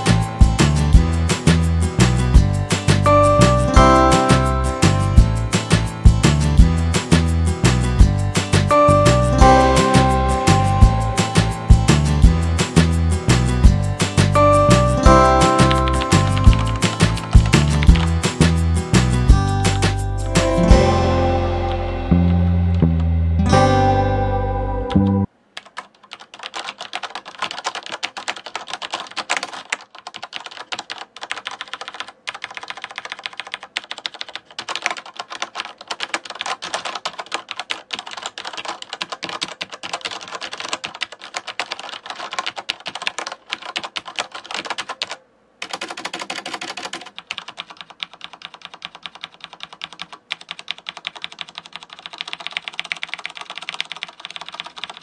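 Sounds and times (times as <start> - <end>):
strummed guitar music: 0.0 - 25.3
mechanical keyboard typing: 14.0 - 18.6, 25.6 - 55.0.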